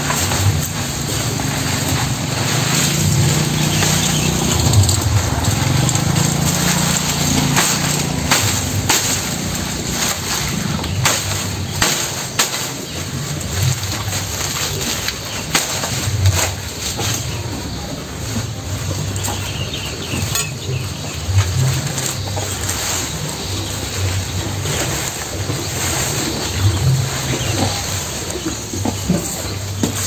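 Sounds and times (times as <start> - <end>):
machete chopping grass stalks: 0.0 - 17.4
low engine hum: 0.0 - 30.0.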